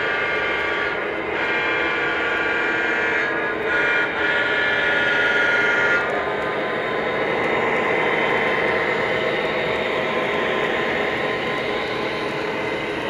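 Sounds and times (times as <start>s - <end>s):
model train diesel horn: 0.0s - 6.9s
wheels rolling on track: 0.0s - 13.0s.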